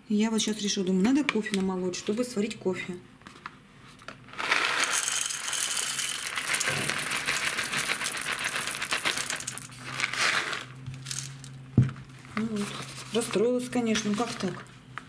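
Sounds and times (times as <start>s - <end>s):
coffee beans rattling into metal bowl: 4.3s - 11.6s.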